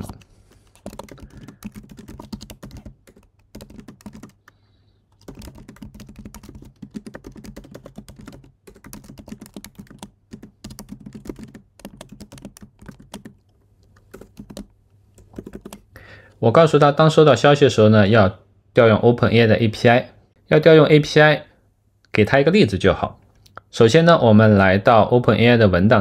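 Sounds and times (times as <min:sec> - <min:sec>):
typing on keyboard: 0:00.0 - 0:15.9.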